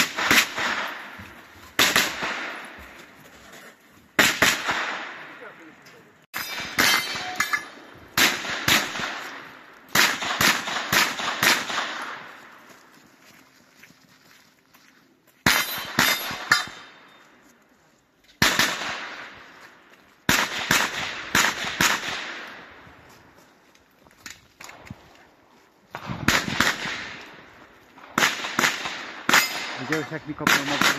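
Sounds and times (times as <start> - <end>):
rapid gunshots with echo: 0.0 - 1.1, 8.2 - 12.3, 28.1 - 30.9.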